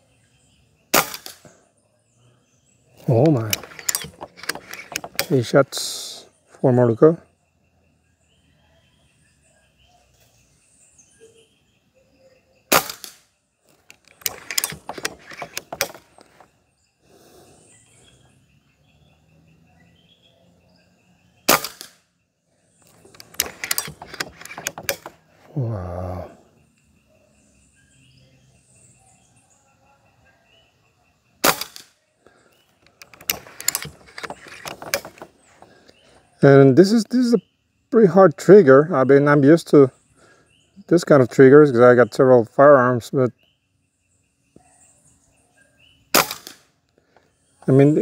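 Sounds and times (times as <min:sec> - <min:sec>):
air rifle shot: 0:01.0 - 0:01.4, 0:12.7 - 0:13.2, 0:21.5 - 0:22.0, 0:31.4 - 0:31.9, 0:46.2 - 0:46.6
rifle lever metallic clicks: 0:03.0 - 0:05.4, 0:13.8 - 0:16.4, 0:22.9 - 0:25.2, 0:32.8 - 0:35.3.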